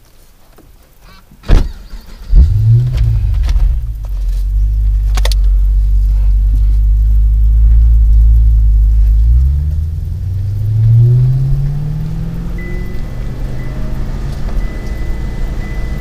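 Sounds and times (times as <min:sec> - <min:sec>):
car engine and road rumble: 0:00.0 - 0:16.0
sharp clicks: 0:04.9 - 0:05.6.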